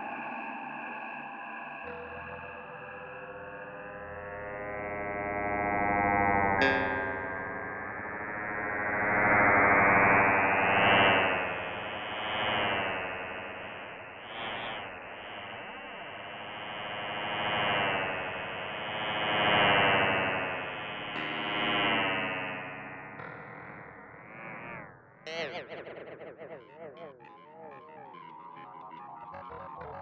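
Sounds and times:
synthesized drone: 25.2s - 30.0s.

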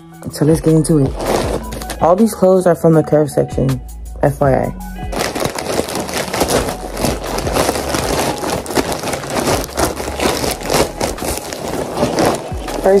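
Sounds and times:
plastic bag crinkling and tearing: 1.1s - 2.1s, 5.1s - 13.0s.

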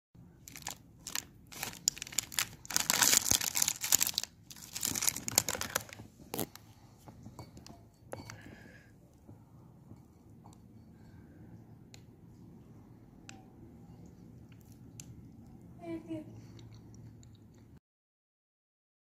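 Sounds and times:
packet rustling: 0.4s - 6.6s
plastic packet crinkling and tearing: 0.4s - 6.6s.

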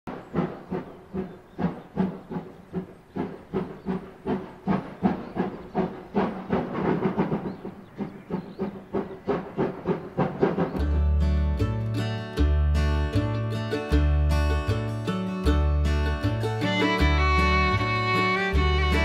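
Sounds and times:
steam locomotive chuffing: 0.1s - 11.1s, 16.3s - 19.0s
steam hissing: 0.3s - 10.8s.

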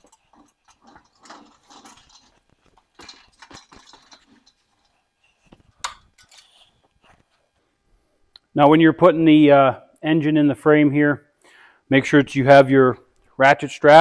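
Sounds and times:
engine hoist rattling and creaking: 0.0s - 6.9s.

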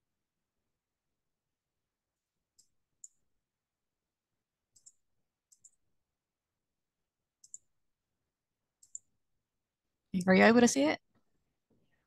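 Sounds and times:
computer mouse clicks: 2.5s - 3.2s, 4.7s - 5.8s, 7.4s - 7.7s, 8.8s - 9.1s.

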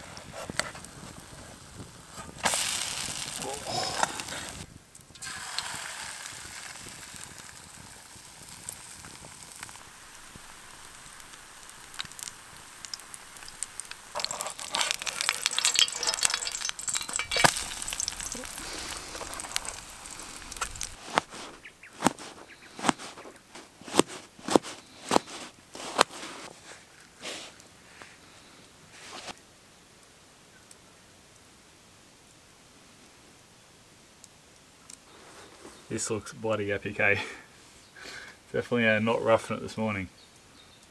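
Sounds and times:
batter sizzling in frying pan: 0.0s - 26.2s.

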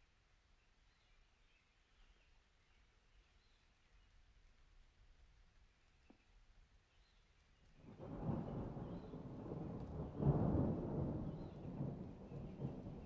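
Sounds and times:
thunder rumble: 7.8s - 13.0s.

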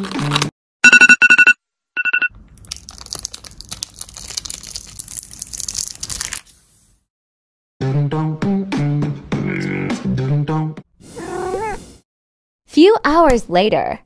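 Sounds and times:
plastic film being peeled off: 2.6s - 6.7s.

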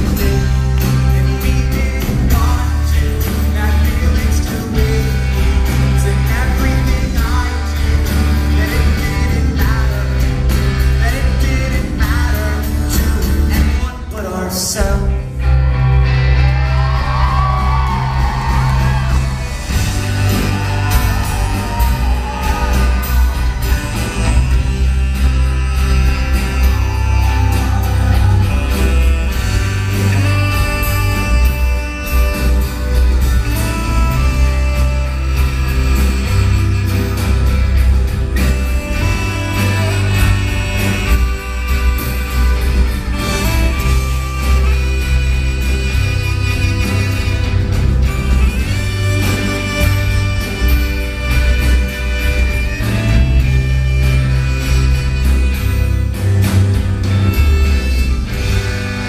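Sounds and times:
sung vocals: 0.0s - 15.6s
live rock band playing: 0.0s - 59.0s
saxophone playing: 15.5s - 59.0s.

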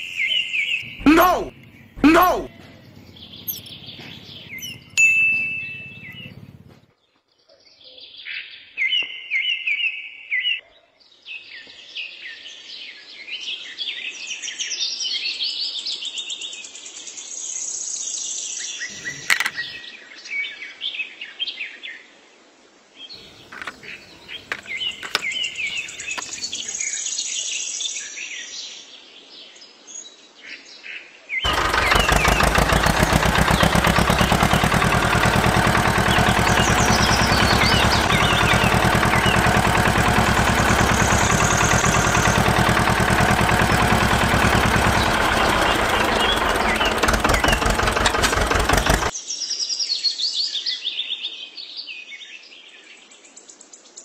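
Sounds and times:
birds chirping and singing: 0.0s - 5.0s, 5.6s - 6.8s, 23.2s - 26.8s, 31.5s - 49.1s
sharp clicks: 31.5s - 49.1s.

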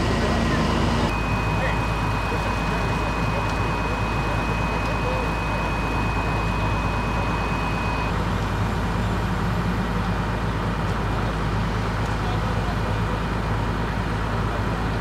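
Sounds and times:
diesel engine idling: 0.0s - 15.0s
thin high steady tone: 1.1s - 8.1s.

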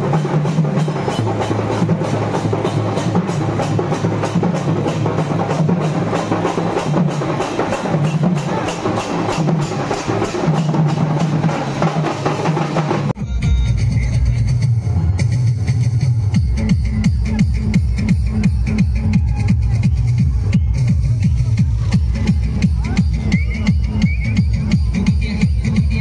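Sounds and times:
folk percussion band drumming: 0.0s - 13.2s, 15.6s - 26.0s
electronic dance music: 12.8s - 26.0s.

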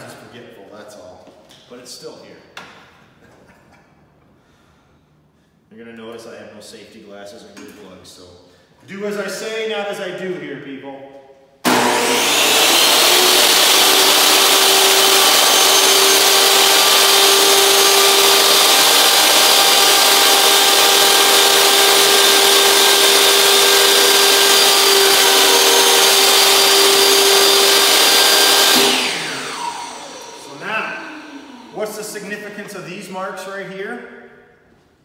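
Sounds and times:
table saw motor whining: 11.6s - 31.8s.

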